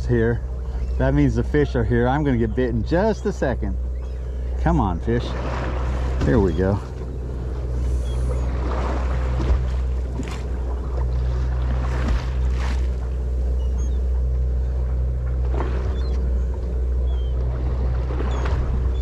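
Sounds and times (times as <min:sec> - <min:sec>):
boat engine humming: 0:00.0 - 0:19.0
water splashing against hull: 0:00.0 - 0:19.0.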